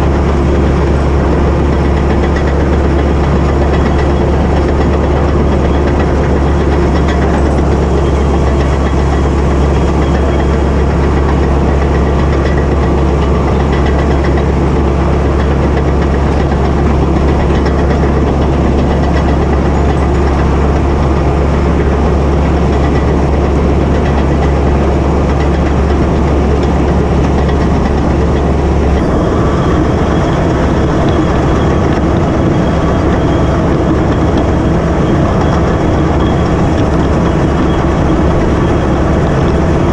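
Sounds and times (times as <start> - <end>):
bulldozer diesel engine droning: 0.0 - 39.9.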